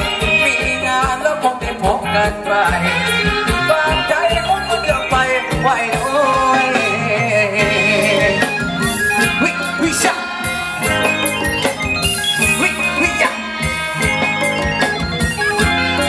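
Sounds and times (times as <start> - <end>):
drum kit beat: 0.0 - 16.0
electric guitars: 0.0 - 16.0
live band dance music: 0.0 - 16.0
wavering lead melody: 0.0 - 16.0.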